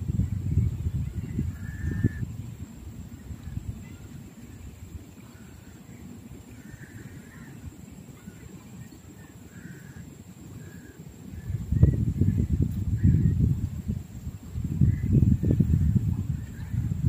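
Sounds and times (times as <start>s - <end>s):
crow cawing: 1.6s - 2.2s, 6.6s - 7.6s, 9.5s - 10.0s.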